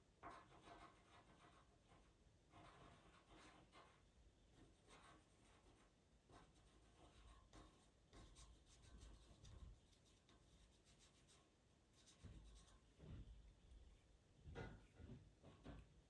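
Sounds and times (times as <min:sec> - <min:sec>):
pastel pencil scratching on paper: 0:00.2 - 0:12.8.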